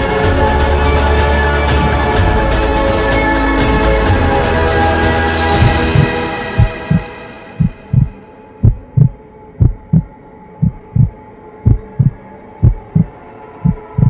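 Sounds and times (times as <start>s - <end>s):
faint steady drone: 1.0s - 14.0s
heartbeat thumps: 5.6s - 13.1s, 13.7s - 14.0s.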